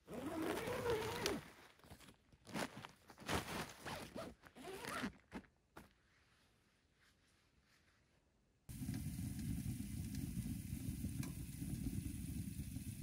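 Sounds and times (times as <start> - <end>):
tent zipper being pulled: 0.0 - 5.2.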